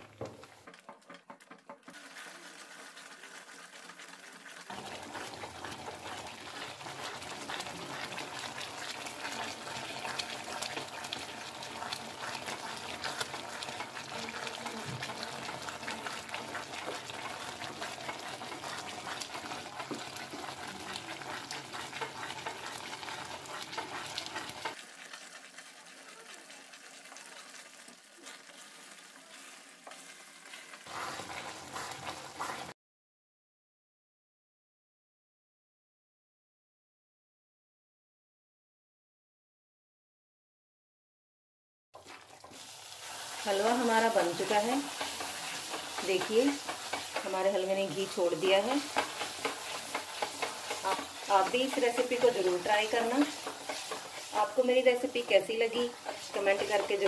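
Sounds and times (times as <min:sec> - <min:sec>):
halwa sizzling and bubbling: 0:00.0 - 0:32.8, 0:42.0 - 0:57.0
spatula stirring and scraping: 0:00.0 - 0:32.8, 0:42.0 - 0:57.0.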